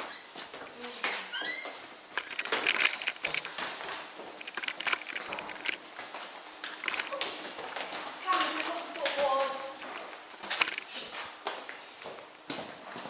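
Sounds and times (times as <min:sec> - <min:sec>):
footsteps: 0:00.0 - 0:13.0
handheld camera knocks and rustles: 0:02.2 - 0:03.6, 0:04.4 - 0:05.8, 0:06.7 - 0:07.2, 0:10.6 - 0:10.9.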